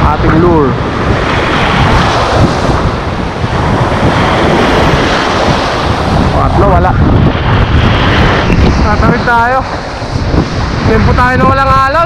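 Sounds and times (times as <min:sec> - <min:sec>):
strong wind on microphone: 0:00.0 - 0:12.0
waves breaking on shore: 0:00.0 - 0:12.0.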